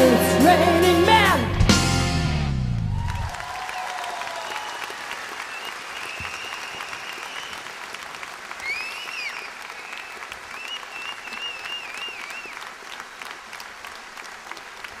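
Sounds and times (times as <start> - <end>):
audience applauding: 2.7 - 15.0
whistles from audience: 4.4 - 7.8, 8.6 - 12.7.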